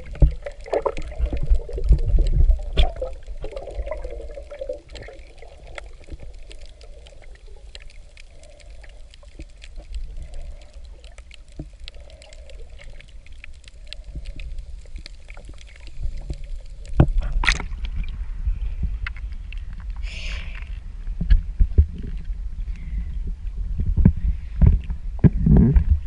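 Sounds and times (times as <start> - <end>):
faint clicks: 0.0 - 18.2
rush of water: 0.0 - 20.7
muffled underwater rumble: 0.0 - 26.0.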